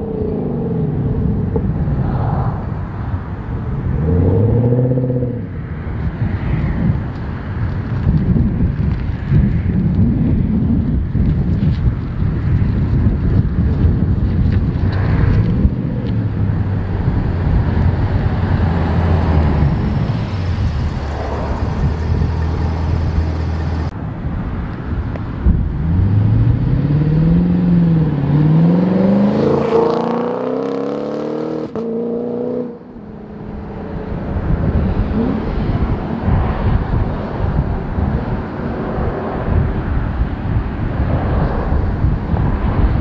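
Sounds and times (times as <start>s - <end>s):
wind noise: 0.0s - 43.0s
car engine accelerating hard: 25.8s - 36.3s.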